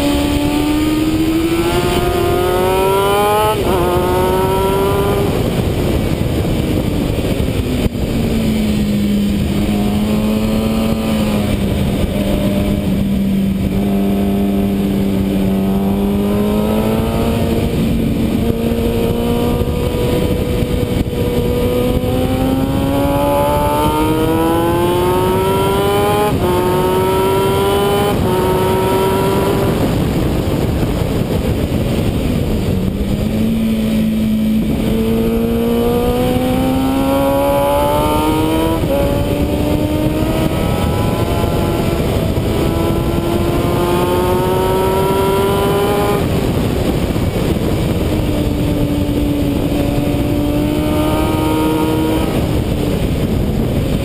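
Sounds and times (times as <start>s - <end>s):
motorcycle engine revving: 0.0s - 54.0s
wind rush: 0.0s - 54.0s.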